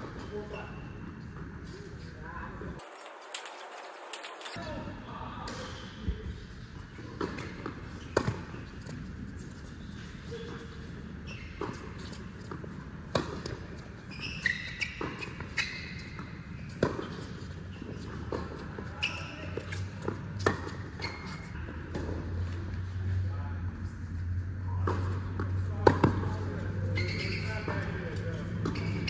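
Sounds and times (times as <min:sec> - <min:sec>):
tennis ball bouncing on court: 0:07.2 - 0:09.0.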